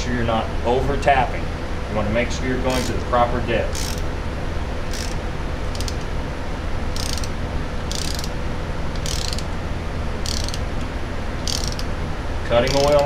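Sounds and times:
socket ratchet clicking: 0:02.7 - 0:03.0, 0:03.7 - 0:04.1, 0:04.9 - 0:06.1, 0:06.9 - 0:09.6, 0:10.2 - 0:12.0, 0:12.6 - 0:13.0.

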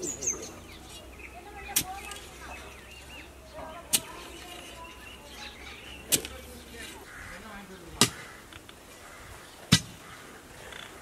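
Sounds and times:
metal bar striking hard earth: 0:09.7 - 0:10.0.

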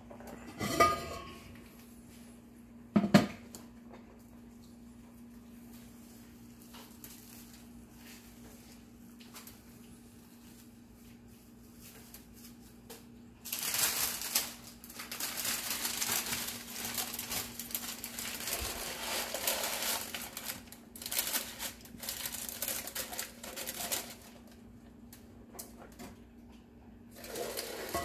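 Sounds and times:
parchment paper crinkling: 0:05.7 - 0:25.8.

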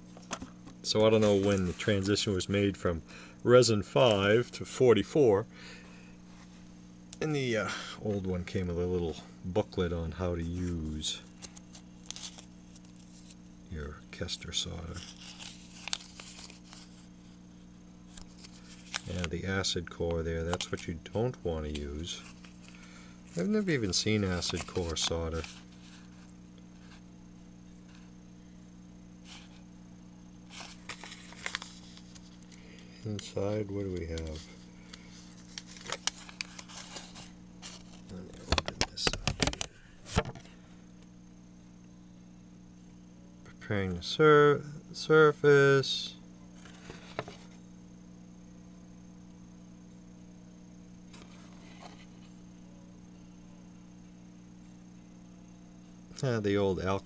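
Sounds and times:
faint high whine: 0:00.0 - 0:57.0
low electrical hum: 0:00.0 - 0:57.0
paper leaflet rustling: 0:00.2 - 0:02.4, 0:03.9 - 0:04.3, 0:10.4 - 0:13.4, 0:14.7 - 0:17.1, 0:18.1 - 0:27.0, 0:29.3 - 0:29.6, 0:30.5 - 0:40.5, 0:46.6 - 0:47.6.

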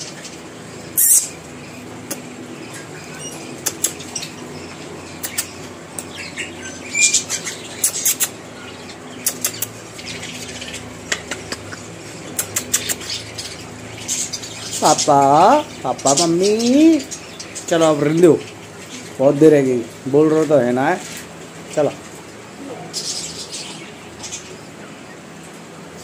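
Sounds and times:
low steady hum: 0:00.0 - 0:26.0
parrot squeak: 0:01.0 - 0:01.4.

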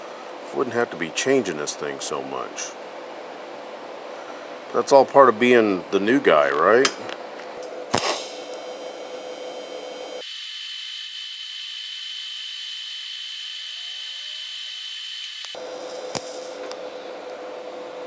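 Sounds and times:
welding arc hissing: 0:07.9 - 0:08.9, 0:10.0 - 0:16.6.

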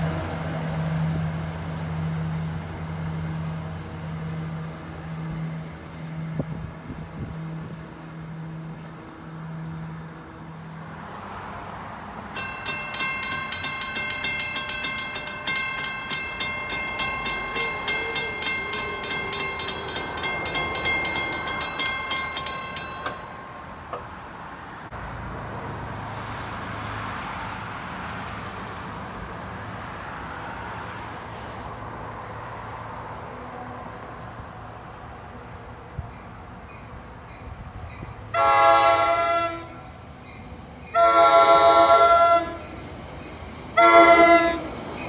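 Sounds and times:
railroad crossing bell ringing: 0:12.3 - 0:24.4, 0:36.1 - 0:45.0.

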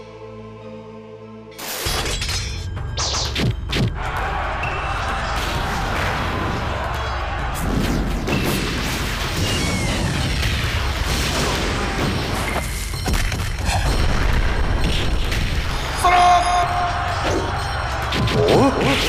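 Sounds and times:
loud shout: 0:16.0 - 0:19.0.

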